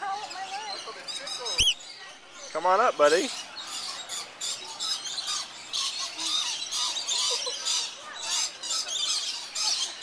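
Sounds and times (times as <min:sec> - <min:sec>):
parrots screeching: 0:01.2 - 0:01.8.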